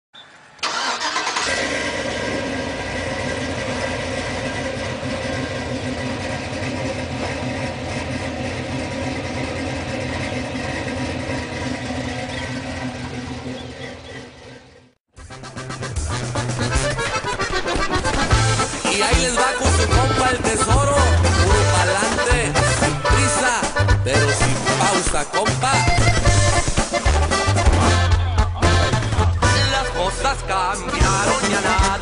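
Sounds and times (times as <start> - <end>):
vehicle engine starting and running: 0.2 - 32.0.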